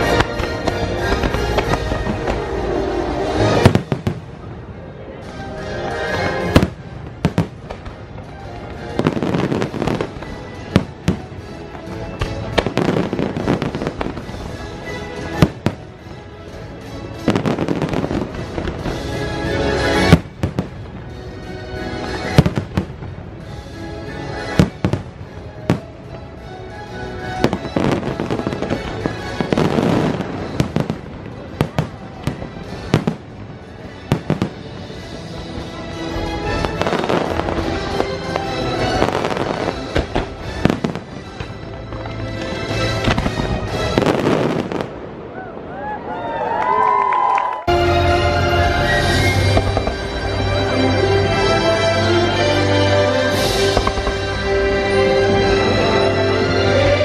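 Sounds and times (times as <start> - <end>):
fireworks bangs: 0.0 - 4.6, 5.2 - 16.2, 22.0 - 23.5, 27.4 - 46.0, 48.7 - 51.5, 53.3 - 56.0
music: 0.0 - 45.3, 46.7 - 57.0.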